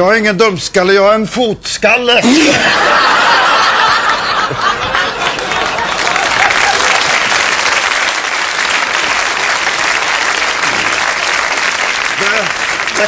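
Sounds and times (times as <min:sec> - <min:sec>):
audience applauding: 0:02.8 - 0:13.0.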